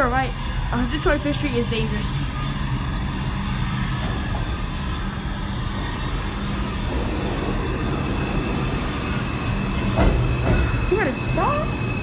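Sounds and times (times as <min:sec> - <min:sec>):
subway train rumbling: 0:00.0 - 0:12.0.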